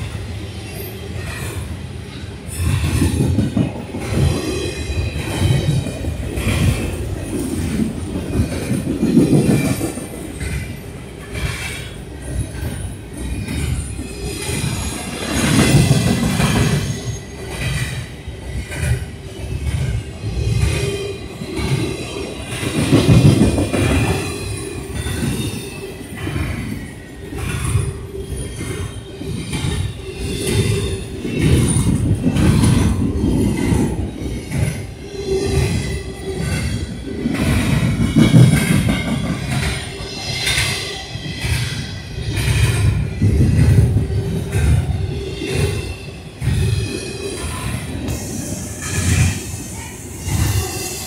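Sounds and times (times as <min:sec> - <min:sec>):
train wheels rumbling on rail: 0:00.0 - 0:51.0
clacks over rail joints: 0:05.2 - 0:45.8.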